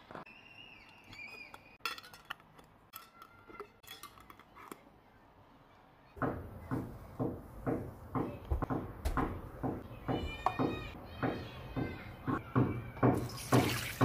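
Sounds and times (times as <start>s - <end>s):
metal lids clinking on glass jars: 1.0s - 4.8s.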